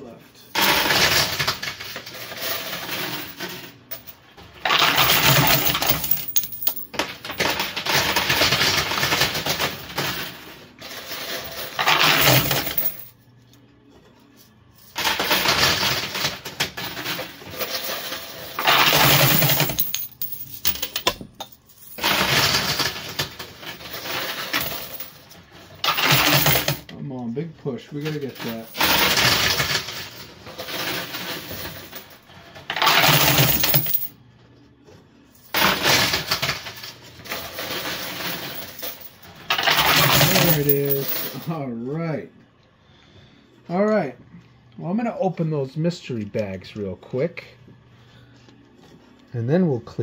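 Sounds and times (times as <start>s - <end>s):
coins clattering in arcade machine: 0.5s - 13.2s, 14.8s - 26.9s, 28.0s - 34.2s, 35.4s - 41.6s.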